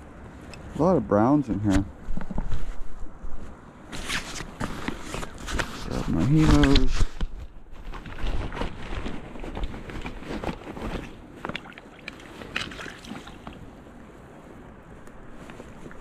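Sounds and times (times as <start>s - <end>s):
water sloshing: 7.8s - 14.1s
fish splashing: 11.0s - 13.7s.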